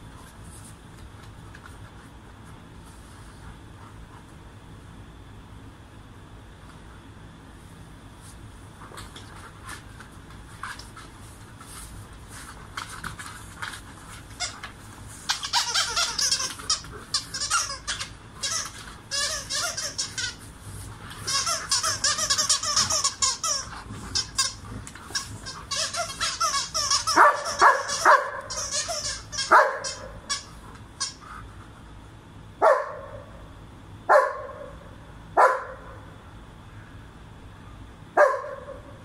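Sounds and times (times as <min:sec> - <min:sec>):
squeaky dog toy squeaking: 0:15.3 - 0:20.4, 0:21.3 - 0:24.6, 0:25.4 - 0:31.2.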